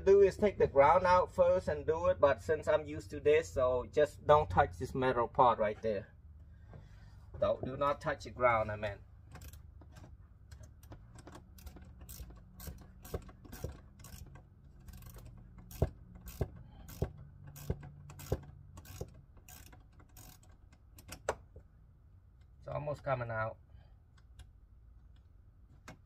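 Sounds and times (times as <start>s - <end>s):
wrench clicking on nut: 9.3s - 9.7s, 10.5s - 21.5s.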